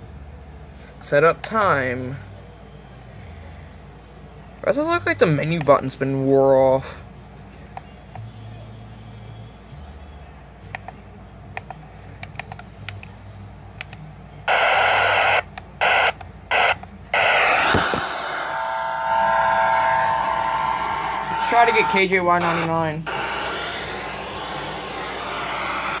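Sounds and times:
radio static hiss: 14.5s - 26.0s.

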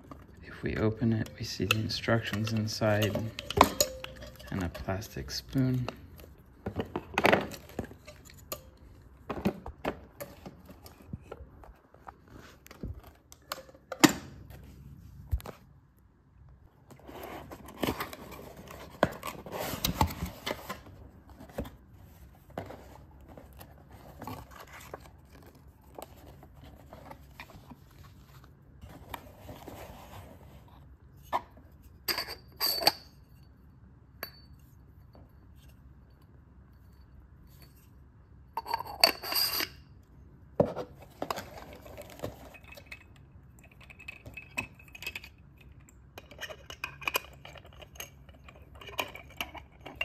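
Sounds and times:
cardboard scraping and rustling: 16.9s - 30.8s.

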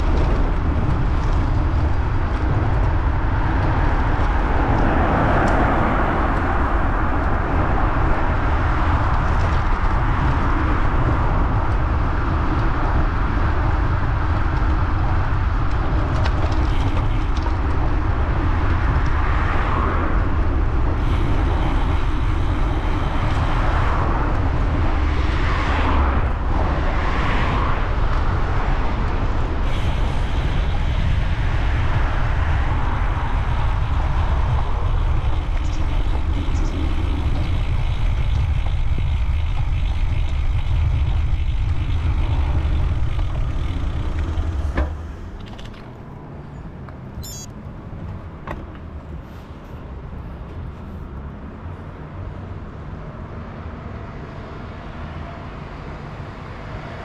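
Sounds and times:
vehicles passing: 0.0s - 57.0s
wind rumble on microphone: 0.0s - 57.0s.

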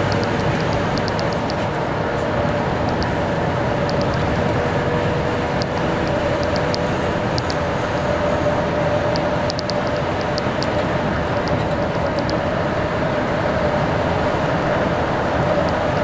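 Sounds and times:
large vehicle engine and road noise: 0.0s - 16.0s
brief clicks: 9.2s - 10.8s.

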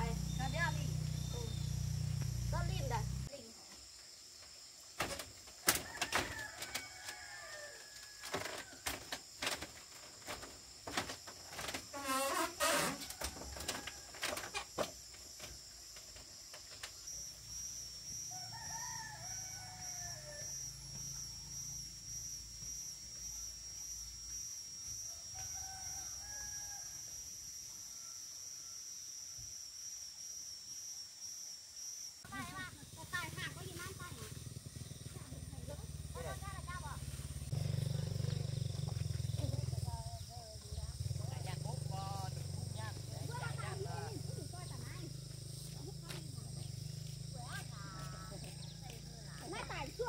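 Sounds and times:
rooster crowing: 5.7s - 8.8s, 12.1s - 14.8s, 18.2s - 21.4s, 25.1s - 28.8s.

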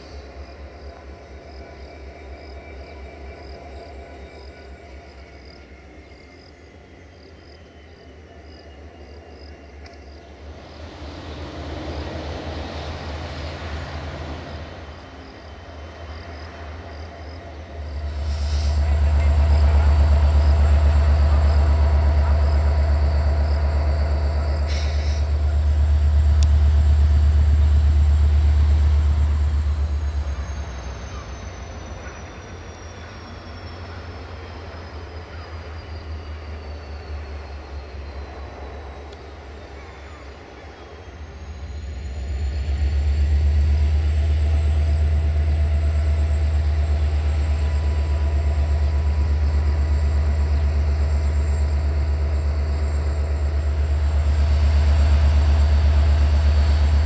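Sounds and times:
diesel locomotive engine rumbling: 0.0s - 57.0s.

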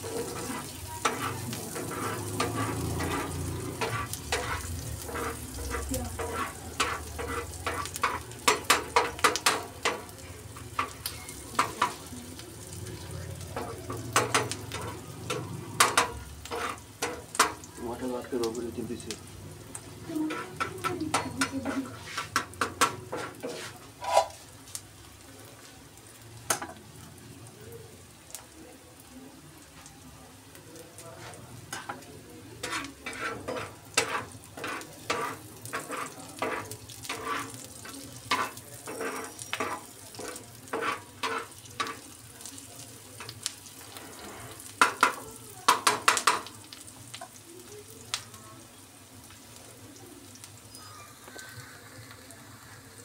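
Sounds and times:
metal spatula scraping pan: 0.0s - 10.1s, 13.6s - 17.6s, 20.1s - 24.4s, 32.6s - 42.1s
faint frying sizzle: 0.0s - 53.0s.

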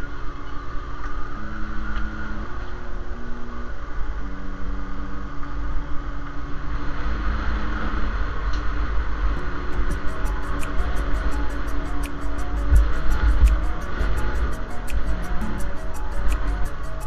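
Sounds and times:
wind: 0.0s - 17.0s
background music of held notes: 9.4s - 17.0s.

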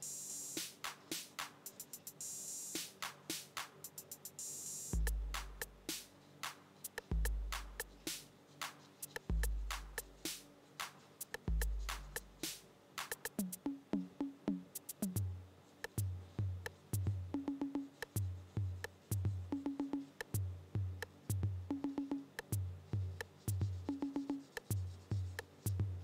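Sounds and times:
drum machine clicks: 0.0s - 26.0s
electronic music: 13.2s - 15.4s, 16.0s - 26.0s.

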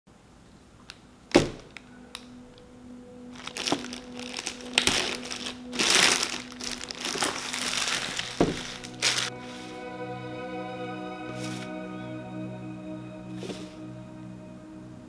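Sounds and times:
plastic bag crinkling: 3.4s - 9.3s.

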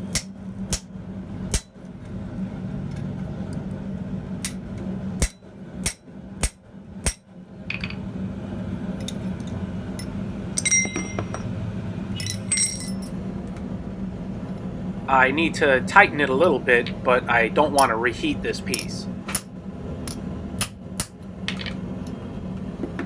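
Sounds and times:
hammer striking steel punch: 5.2s - 7.2s
metal clinks on anvil: 10.6s - 11.5s, 12.2s - 13.1s.

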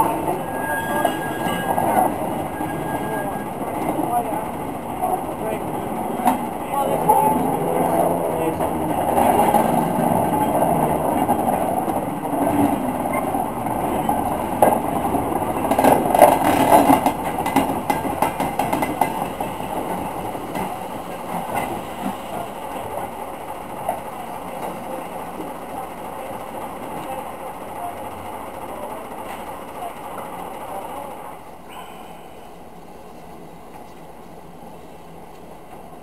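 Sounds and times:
wagon wheels clicking over rail joints: 5.4s - 23.1s.

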